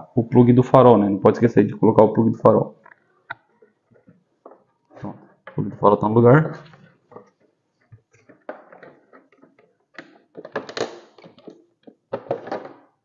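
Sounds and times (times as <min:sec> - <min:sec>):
plastic scraping against plastic: 0:06.4 - 0:13.0.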